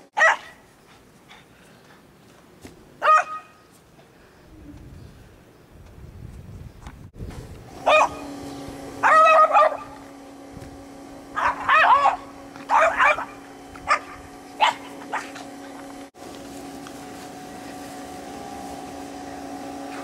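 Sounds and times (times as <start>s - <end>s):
dog barking: 0.2s - 0.6s, 3.0s - 3.6s, 7.8s - 8.2s, 9.0s - 10.0s, 11.4s - 15.5s.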